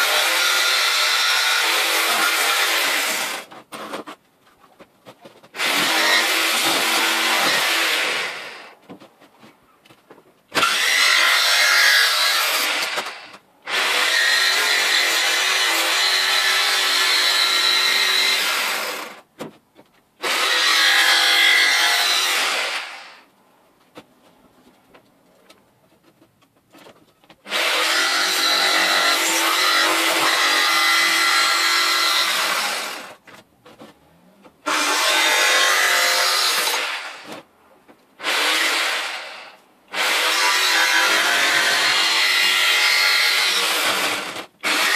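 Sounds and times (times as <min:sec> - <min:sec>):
electric jigsaw cutting sheet: 0:00.0 - 0:03.5, 0:05.6 - 0:08.6, 0:10.6 - 0:19.2, 0:27.5 - 0:33.2, 0:34.7 - 0:37.3, 0:38.2 - 0:44.9.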